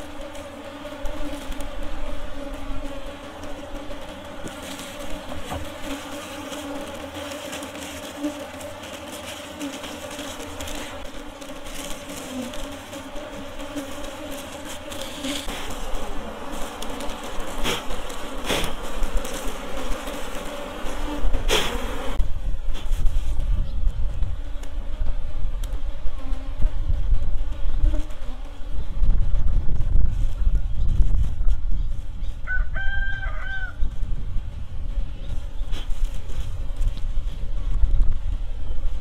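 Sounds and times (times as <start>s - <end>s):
bees buzzing: 0.0s - 22.7s, 24.0s - 29.2s.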